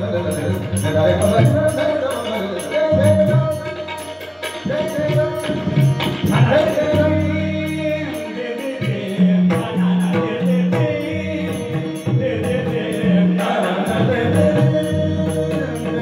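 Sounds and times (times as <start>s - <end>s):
harmonium: 0.0s - 16.0s
sharp high timekeeping beat: 0.0s - 16.0s
tabla drums: 0.0s - 16.0s.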